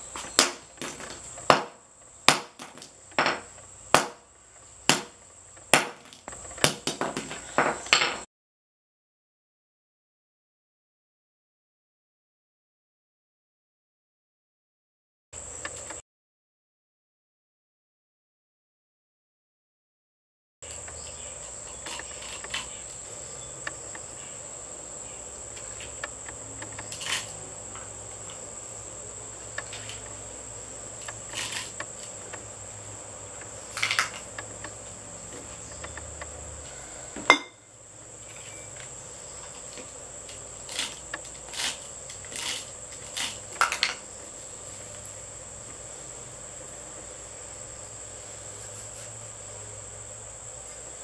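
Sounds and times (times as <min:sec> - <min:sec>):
high insect trill: 0:00.0 - 0:08.3, 0:15.4 - 0:16.0, 0:20.6 - 0:51.0.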